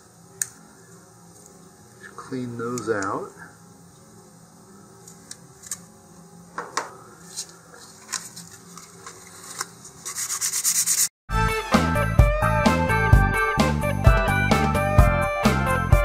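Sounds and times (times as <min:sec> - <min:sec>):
sandpaper rubbing: 0:09.2 - 0:11.1
loud background music: 0:11.3 - 0:16.0.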